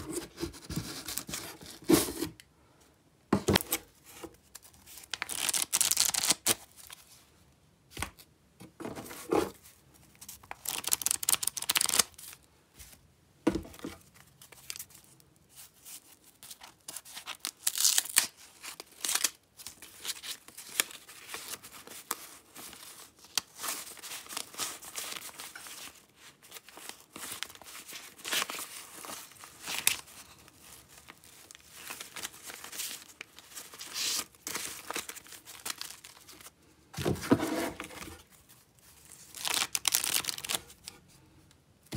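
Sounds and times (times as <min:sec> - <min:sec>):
paper band tearing: 0:05.2 - 0:06.6.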